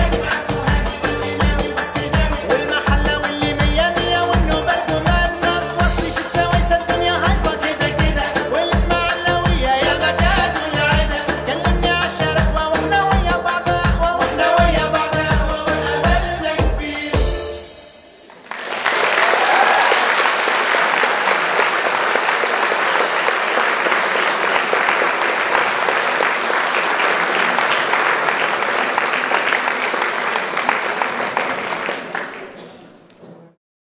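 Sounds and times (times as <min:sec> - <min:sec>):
music: 0:00.0 - 0:18.3
audience applause: 0:18.3 - 0:33.1.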